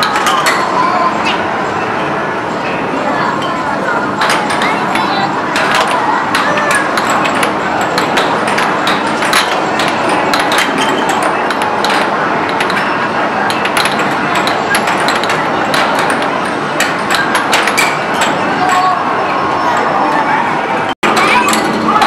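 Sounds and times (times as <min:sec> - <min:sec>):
busy arcade din: 0:00.0 - 0:22.0
air hockey puck clacking: 0:04.2 - 0:18.9.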